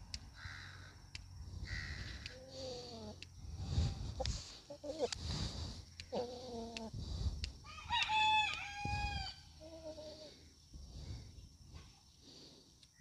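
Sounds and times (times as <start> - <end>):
light ticks: 0.1 - 0.4, 1.1 - 3.4, 4.1 - 4.4, 5.0 - 8.7
rooster crowing: 7.6 - 10.2.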